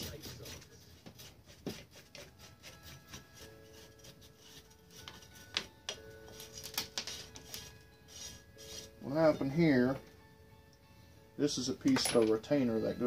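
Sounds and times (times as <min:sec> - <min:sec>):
hand tool scraping metal: 0:00.0 - 0:05.7, 0:06.3 - 0:09.2.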